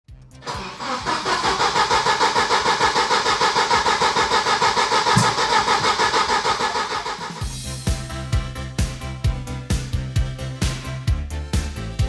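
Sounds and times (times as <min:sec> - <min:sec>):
engine cranking by starter motor: 0:00.4 - 0:07.5.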